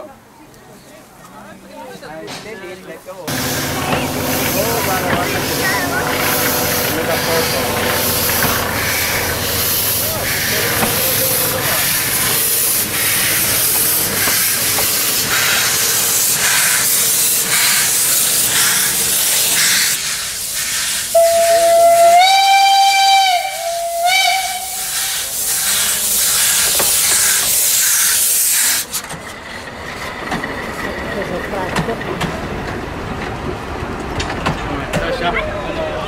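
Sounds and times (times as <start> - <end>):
steam hissing: 3.3 - 29.1
steam whistle blast: 21.1 - 25.3.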